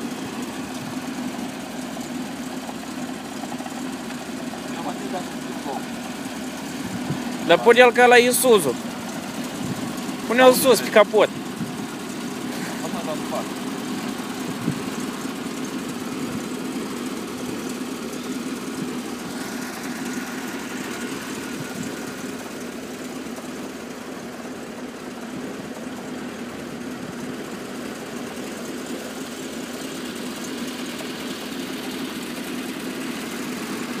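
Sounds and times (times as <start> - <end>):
petrol engine idling: 0.0 - 34.0.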